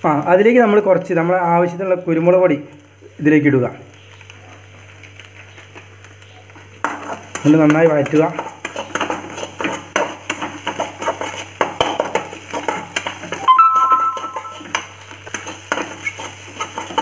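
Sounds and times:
metal spatula scraping pan: 8.1 - 17.0.

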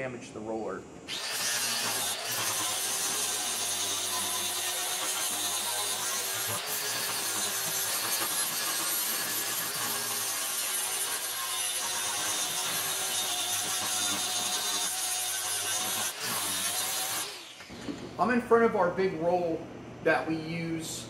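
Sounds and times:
angle grinder sanding steel: 1.1 - 17.6.

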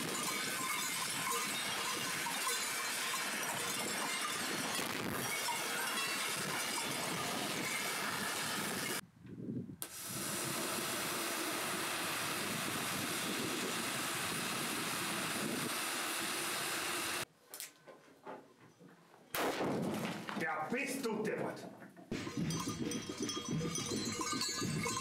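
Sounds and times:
firework fountains hissing: 0.0 - 9.0, 9.8 - 17.3.

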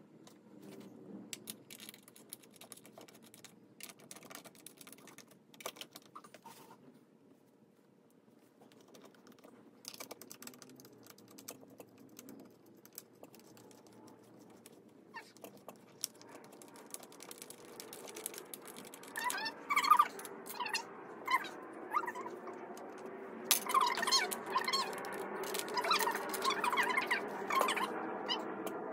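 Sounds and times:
chair parts clicking and rattling: 1.4 - 6.3, 8.7 - 20.8, 22.7 - 27.9
short high squeaks: 19.1 - 22.6, 23.6 - 28.6.

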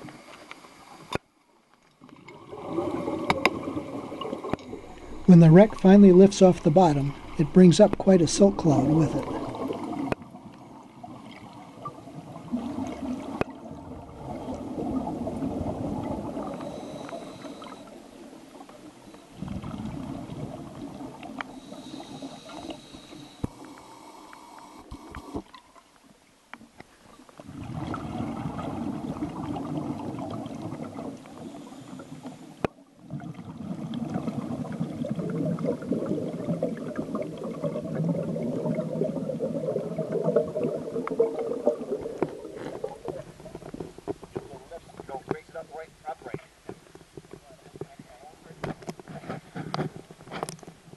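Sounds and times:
underwater air bubbling: 2.0 - 25.5, 27.4 - 45.2.

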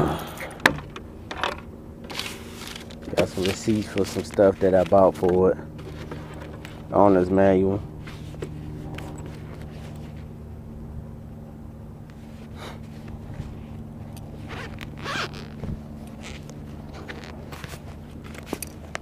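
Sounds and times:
steady low hum: 0.0 - 19.0
papers scraping rustles: 2.1 - 6.9, 8.0 - 10.3, 12.2 - 19.0.

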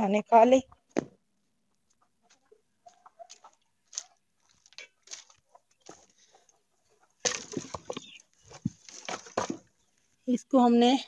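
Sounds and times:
faint crunches and scuffs: 2.3 - 6.2
wooden planks scraping and knocking: 7.2 - 9.7.

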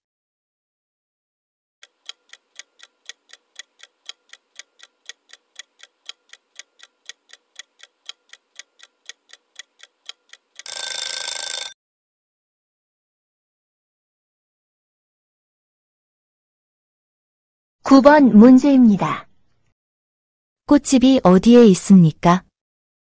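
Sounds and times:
clock-like ticking: 1.8 - 11.8.

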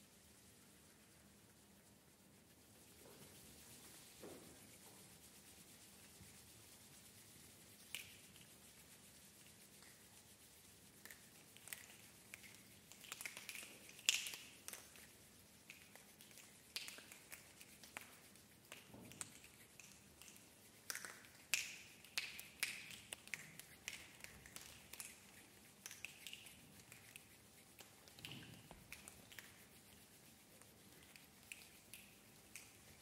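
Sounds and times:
choir finger snaps and clicks: 7.8 - 8.5, 11.0 - 29.6, 31.0 - 33.0.

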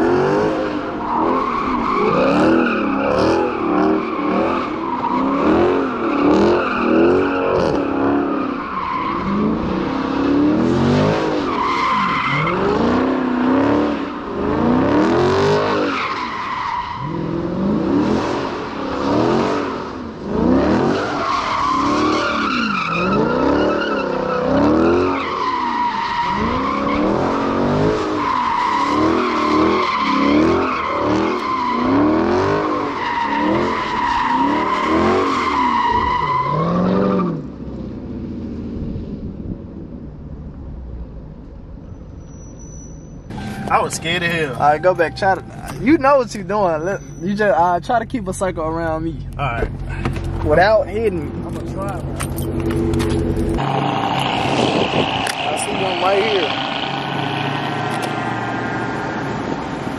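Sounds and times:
car engine revving: 0.0 - 38.8, 43.3 - 59.9
tyres squealing: 42.2 - 48.6.

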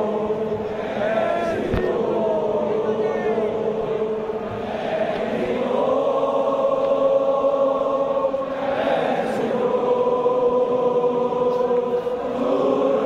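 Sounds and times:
crowd singing a chant: 0.0 - 13.0.

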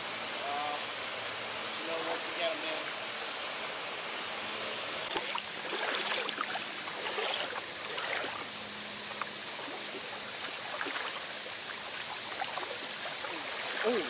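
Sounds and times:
creek water splashing and trickling: 5.0 - 14.0
fish thrashing at water surface: 5.1 - 8.5, 9.6 - 14.0.

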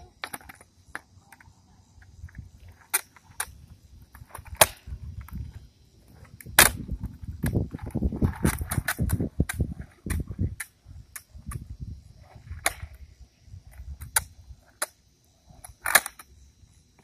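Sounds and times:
skateboard tail slapping concrete: 0.0 - 1.6, 2.3 - 13.0, 15.6 - 16.3
skateboard wheels rolling: 0.0 - 17.0.

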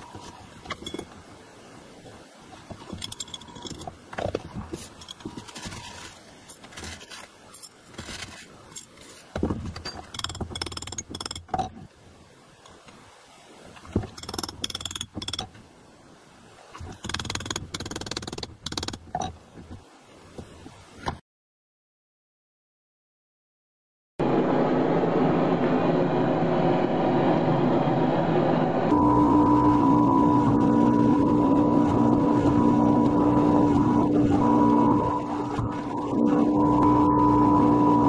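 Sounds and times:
screws rattling: 2.8 - 4.0, 9.7 - 11.7, 14.1 - 15.5, 16.9 - 19.3.

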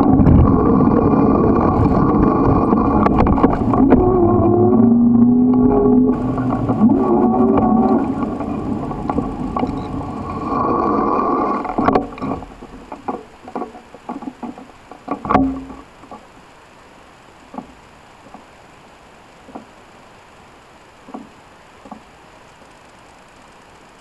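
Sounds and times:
clicks and knocks: 0.0 - 16.3
bicycle rolling on paved path: 0.0 - 24.0
wind: 0.0 - 24.0.

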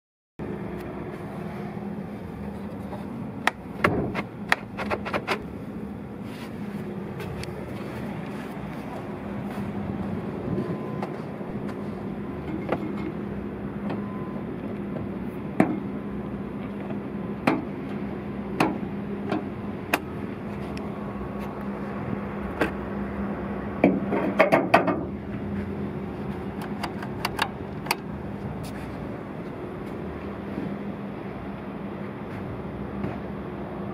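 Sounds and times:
steady low hum: 0.4 - 33.9
hood latch clicks and knocks: 3.4 - 5.4, 23.8 - 25.1, 26.6 - 28.1.

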